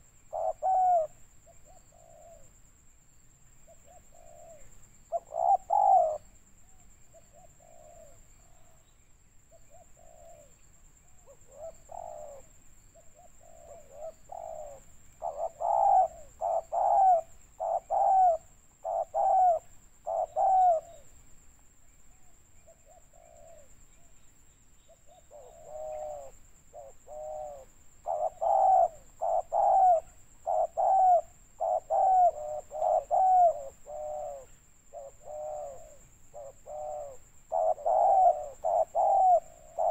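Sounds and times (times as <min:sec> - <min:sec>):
dove cooing: 0:00.0 - 0:02.5, 0:03.7 - 0:08.8, 0:09.6 - 0:21.1, 0:22.2 - 0:24.1, 0:24.9 - 0:39.9.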